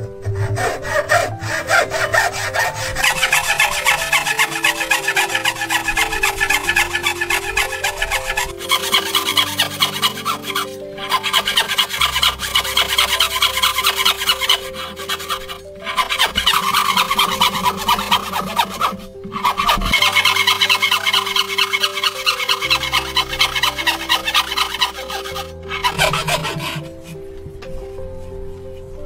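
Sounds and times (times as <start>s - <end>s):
hand saw rasping through wood: 0.0s - 27.2s
background music: 0.0s - 29.0s.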